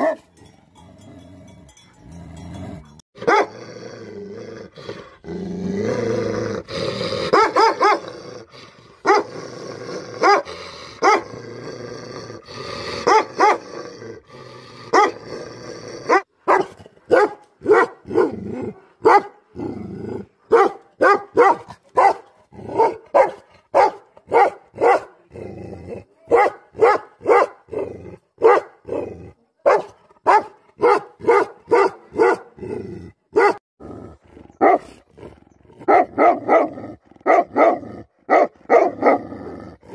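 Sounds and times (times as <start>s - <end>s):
dog growling: 2.4s - 16.3s
dog barking: 3.2s - 3.5s, 7.3s - 8.1s, 9.0s - 9.3s, 10.2s - 11.3s, 13.0s - 13.6s, 14.9s - 15.2s, 16.1s - 18.3s, 19.0s - 19.4s, 20.5s - 25.2s, 26.3s - 27.6s, 28.4s - 28.8s, 29.6s - 32.6s, 33.3s - 33.6s, 34.6s - 34.9s, 35.8s - 39.2s.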